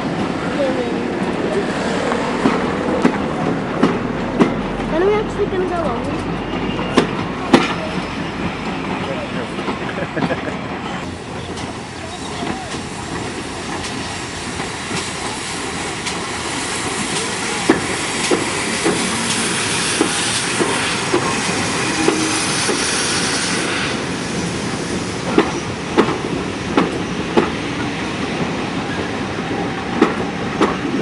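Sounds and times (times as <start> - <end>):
train wheels clicking over rail joints: 0.0 - 31.0
steam locomotive exhaust hiss: 11.1 - 25.8.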